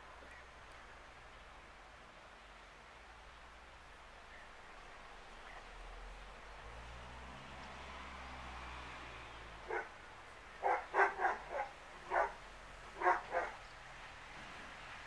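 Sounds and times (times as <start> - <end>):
dog barking: 9.7 - 9.9, 10.6 - 12.4, 13.0 - 13.6.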